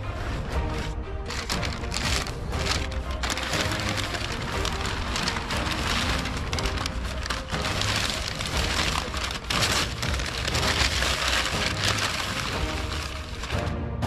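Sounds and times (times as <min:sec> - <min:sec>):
packing paper rustling: 0:00.2 - 0:13.7.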